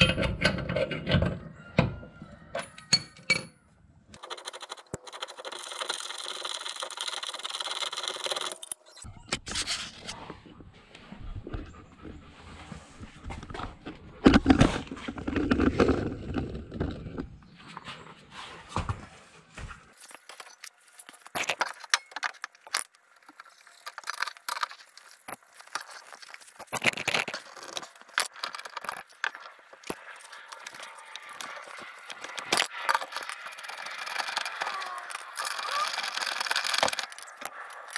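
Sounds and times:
metal clinks and scrapes: 20.0s - 37.9s.

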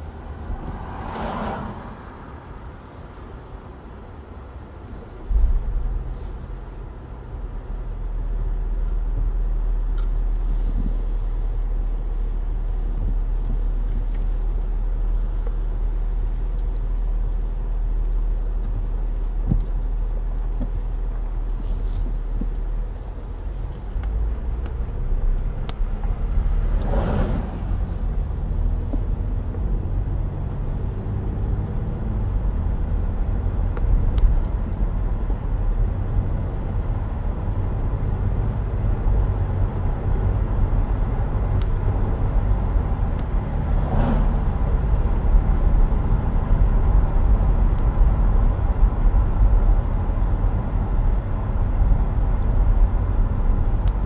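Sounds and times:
car engine and tyre rumble: 0.0s - 54.0s.

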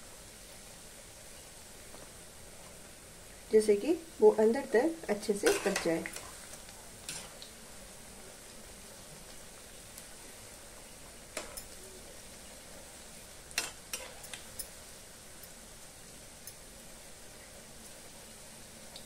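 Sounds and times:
food sizzling in hot oil: 0.0s - 19.0s
metal spatula clinking on pan: 5.4s - 5.9s.

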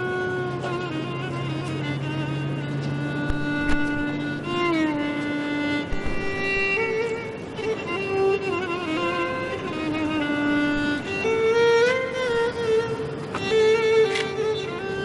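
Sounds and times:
slow violin melody: 0.0s - 15.0s
soft knocks: 3.2s - 4.2s, 5.8s - 6.8s.

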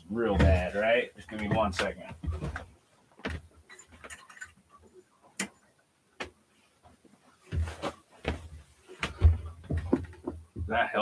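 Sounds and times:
bumping and rustling: 0.2s - 3.5s.

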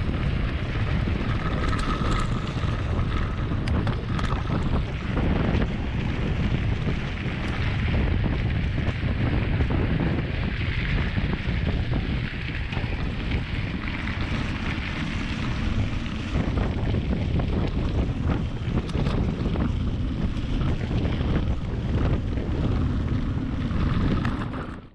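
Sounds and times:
small ticks and rattles: 0.0s - 9.8s
bike tyres rolling on gravel: 0.0s - 24.9s
wind buffeting microphone: 0.0s - 24.9s.

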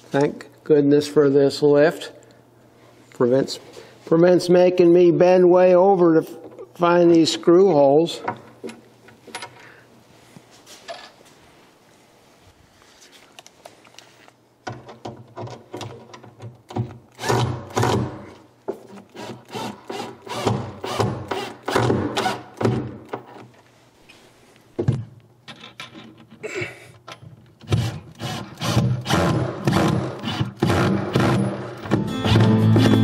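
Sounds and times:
cordless driver driving screws into wood: 16.7s - 18.2s, 18.9s - 23.4s, 27.6s - 31.6s.

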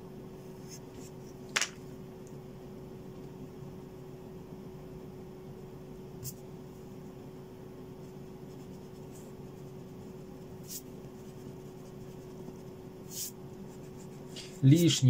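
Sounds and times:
eraser rubbing on paper: 8.5s - 14.9s.

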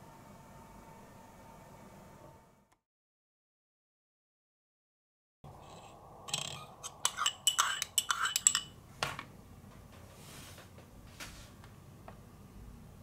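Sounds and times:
teaspoon stirring in ceramic cup: 5.6s - 8.8s.

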